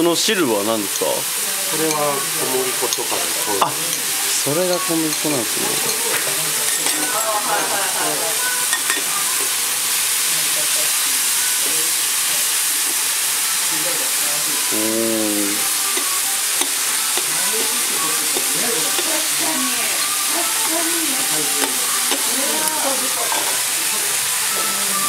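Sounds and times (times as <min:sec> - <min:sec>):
food sizzling on a griddle: 0:00.0 - 0:25.0
metal spatulas chopping and scraping: 0:21.6 - 0:22.3.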